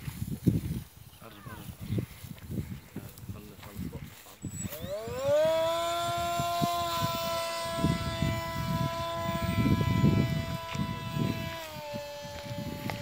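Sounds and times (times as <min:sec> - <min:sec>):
electric motor high-pitched whine: 0:04.3 - 0:13.0.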